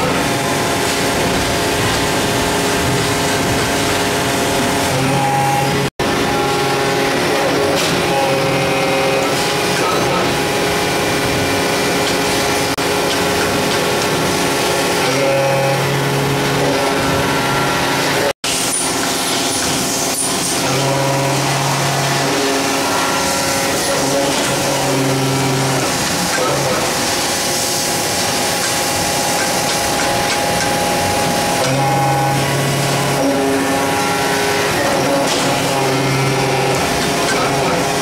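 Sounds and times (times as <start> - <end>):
press machine drone: 0.0 - 38.0.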